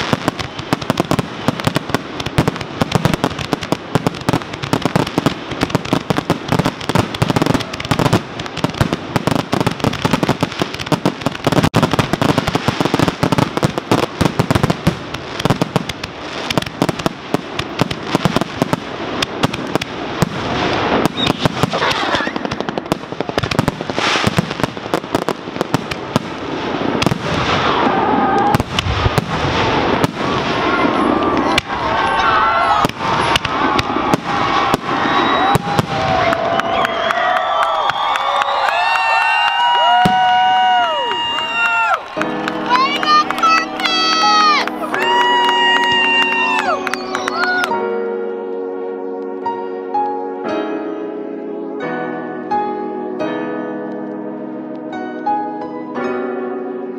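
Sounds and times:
fireworks bangs and crackles: 0:00.0 - 0:47.8.

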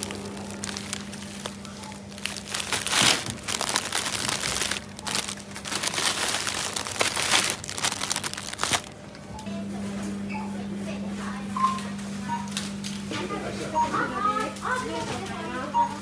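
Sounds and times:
plastic packaging crinkling: 0:00.0 - 0:09.2
low steady hum: 0:00.0 - 0:14.7.

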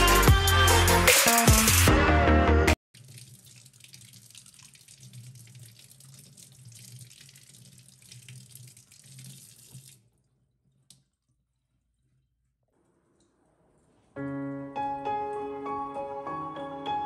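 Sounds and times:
faucet running into steel sink: 0:03.0 - 0:10.1.

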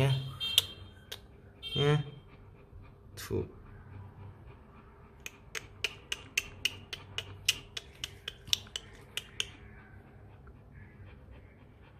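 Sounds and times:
sharp clicks: 0:05.2 - 0:09.6.

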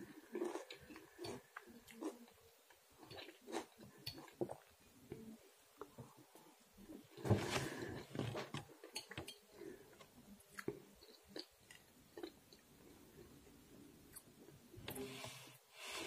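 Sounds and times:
chewing rice pilaf: 0:00.0 - 0:04.7.

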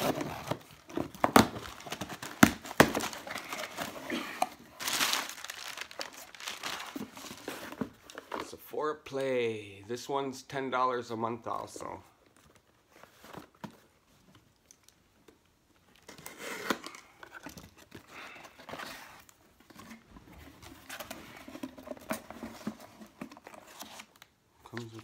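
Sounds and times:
paper rustling and crinkling: 0:00.0 - 0:08.5.

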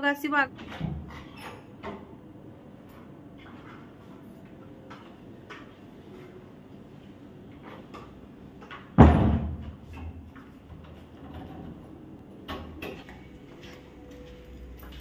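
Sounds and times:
wooden door banging shut: 0:09.0 - 0:09.7.

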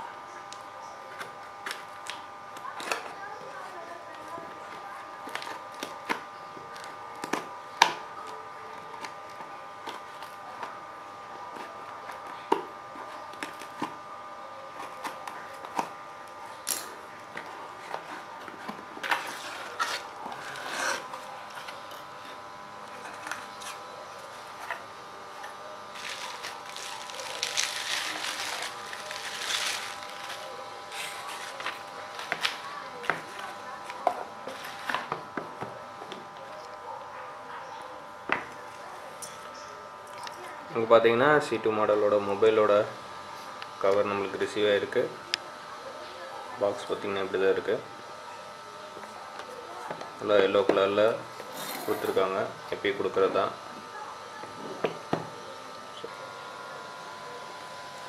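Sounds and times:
faint hum: 0:00.0 - 0:58.0
scissors cutting cardboard: 0:16.8 - 0:22.1, 0:24.5 - 0:35.2
packing material rustling and tearing: 0:25.9 - 0:33.5.

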